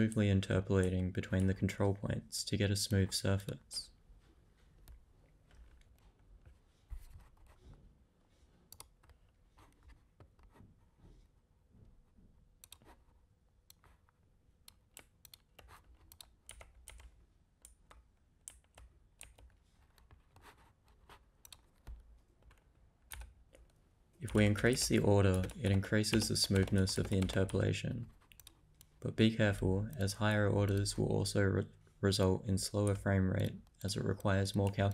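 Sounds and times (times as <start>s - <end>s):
computer keyboard typing: 14.6s - 31.3s, 32.6s - 34.9s.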